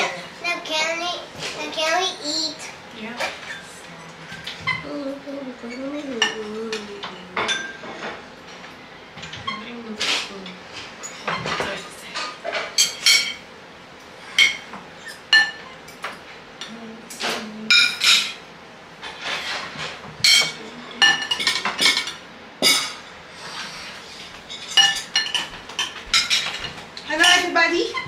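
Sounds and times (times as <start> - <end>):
metal spoons clinking on plates: 5.8 - 8.6, 11.0 - 13.4, 14.3 - 16.2, 17.1 - 18.4, 19.0 - 23.1, 24.4 - 28.0.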